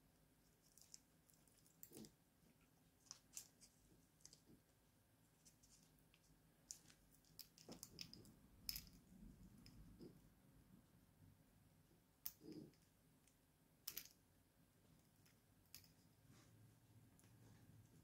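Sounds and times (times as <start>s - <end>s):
soft handling noise: 0.4s - 10.2s, 14.8s - 18.0s.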